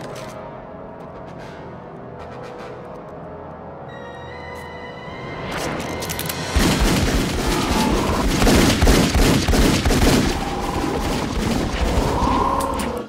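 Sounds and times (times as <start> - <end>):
rapid pistol fire: 6.6 - 11.9.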